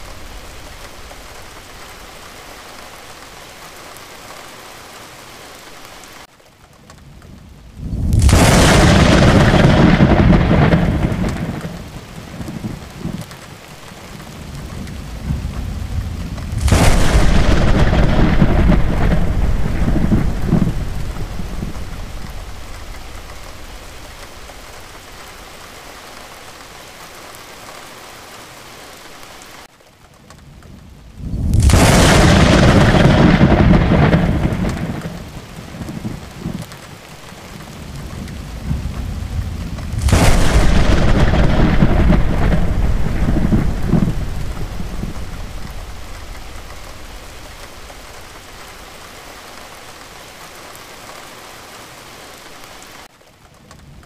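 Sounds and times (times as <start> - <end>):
heavy rain: 0.0 - 54.0
thunderclaps rumbling: 7.0 - 26.2, 30.4 - 49.8.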